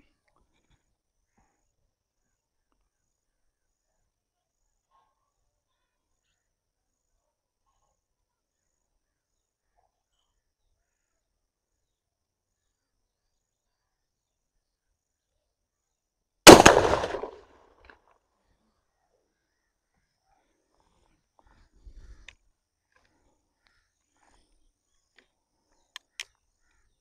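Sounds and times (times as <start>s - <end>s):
shotgun shot: 16.5s - 17.5s.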